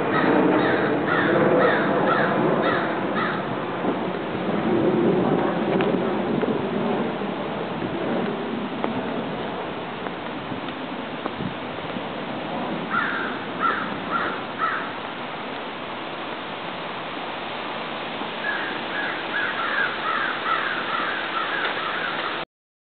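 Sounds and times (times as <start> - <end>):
crows cawing: 0.0 - 3.6, 12.9 - 15.0, 18.4 - 22.4
steady background hiss: 5.3 - 22.4.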